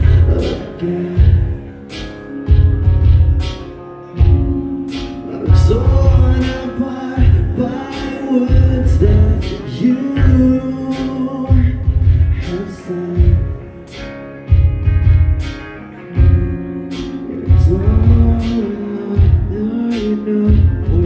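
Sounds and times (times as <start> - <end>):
man singing: 0.0 - 2.4, 4.2 - 14.3, 17.0 - 21.0
heavy drum and bass hits: 0.0 - 12.6, 13.2 - 21.0
rock band playing: 0.0 - 21.0.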